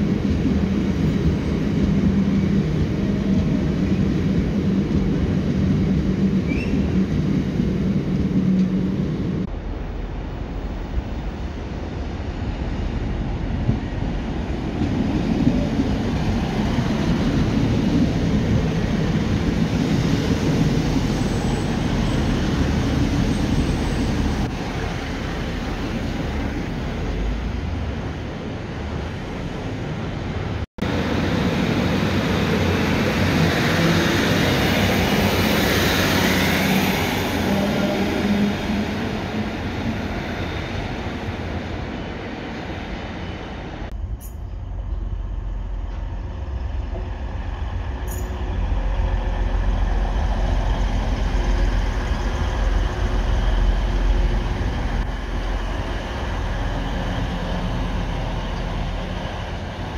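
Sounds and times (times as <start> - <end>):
diesel train arriving slowly: 0.0 - 59.9
diesel train engines rumbling: 0.0 - 59.9.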